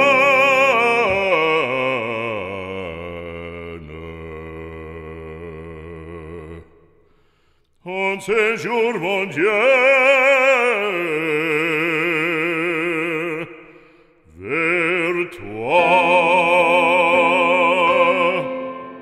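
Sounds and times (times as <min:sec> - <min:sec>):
operatic solo singing: 0:00.0 - 0:06.4, 0:14.4 - 0:19.0.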